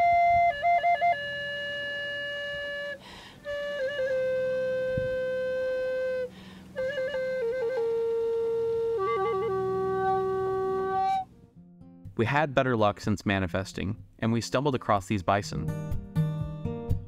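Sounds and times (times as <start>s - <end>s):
wooden flute playing: 0.0s - 11.4s.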